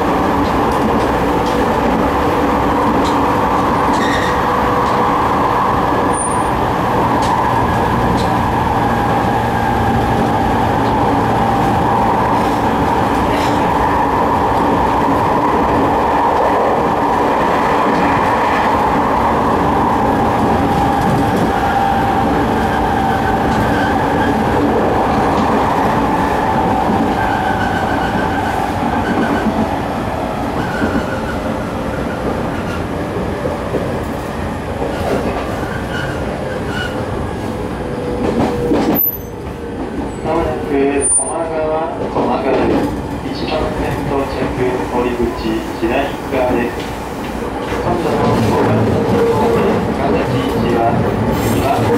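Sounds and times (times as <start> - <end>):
train wheels rumbling on rail: 0.0 - 51.9.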